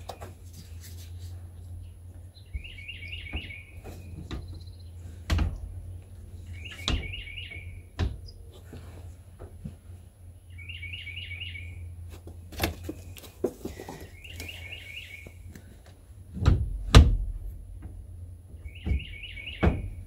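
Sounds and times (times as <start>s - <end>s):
songbird chirping: 0.0s - 8.6s, 10.1s - 15.7s, 18.5s - 20.0s
steady low hum: 0.0s - 20.0s
knocks and thuds: 5.2s - 5.8s, 8.0s - 8.3s, 16.3s - 18.0s, 18.8s - 20.0s.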